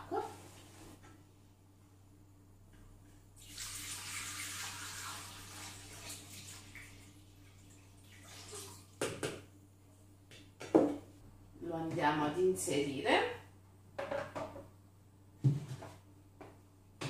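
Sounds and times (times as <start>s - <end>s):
water pouring into metal bowl: 3.4s - 9.0s.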